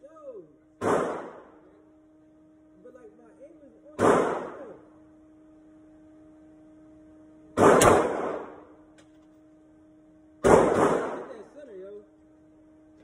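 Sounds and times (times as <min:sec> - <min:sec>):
pistol shots echoing: 0:00.8 - 0:01.5, 0:04.0 - 0:04.7, 0:07.6 - 0:08.7, 0:10.4 - 0:11.4.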